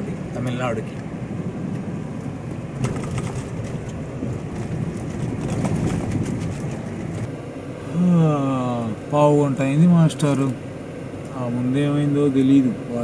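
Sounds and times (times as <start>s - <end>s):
car engine and tyre noise: 0.0s - 13.0s.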